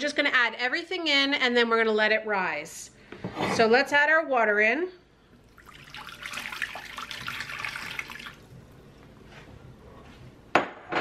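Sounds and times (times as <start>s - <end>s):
faint water trickle: 5.2s - 9.0s
water pouring into plastic bowl: 5.4s - 8.6s.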